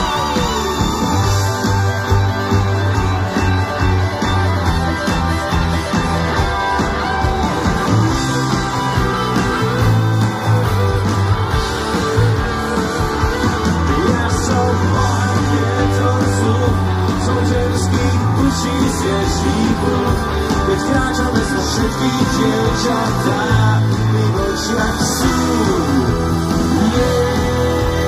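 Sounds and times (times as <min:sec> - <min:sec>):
live rock band: 0:00.0 - 0:28.0
person singing: 0:12.1 - 0:28.0.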